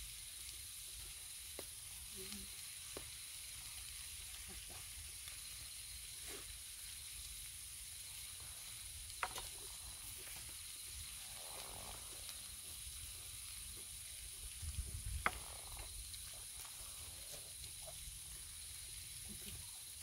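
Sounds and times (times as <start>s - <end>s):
high-pitched hiss: 0.0s - 20.0s.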